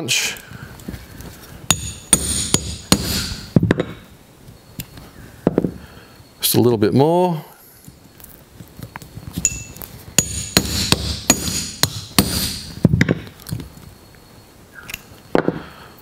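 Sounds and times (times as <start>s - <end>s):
hammer tapping metal punch: 1.7s - 4.0s, 9.4s - 13.2s.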